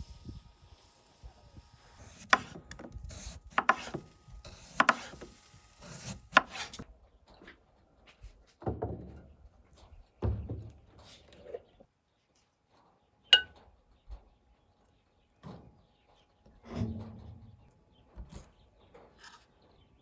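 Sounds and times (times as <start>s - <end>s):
knife slicing on wooden board: 2.0s - 6.8s.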